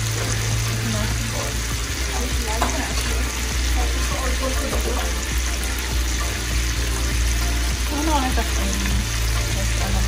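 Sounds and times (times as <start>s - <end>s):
shrimp sizzling in a pan: 0.0s - 10.0s.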